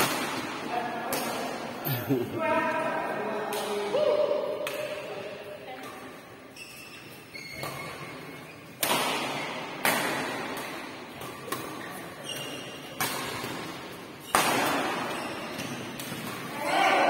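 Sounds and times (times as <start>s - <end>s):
badminton rackets hitting shuttlecock: 0.0s - 1.8s, 7.5s - 17.0s.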